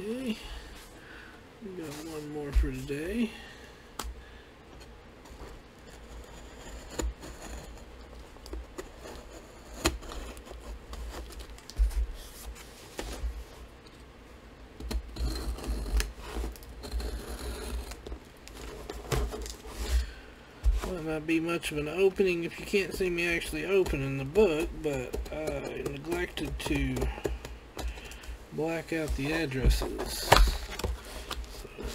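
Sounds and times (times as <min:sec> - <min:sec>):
cardboard and paper rustling: 0:25.3 - 0:31.9.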